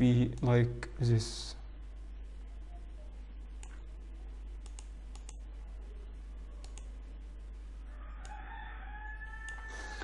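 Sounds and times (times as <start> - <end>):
computer mouse clicks: 3.6 - 3.8, 4.6 - 5.4, 6.6 - 7.0, 8.2 - 8.4, 9.4 - 9.7.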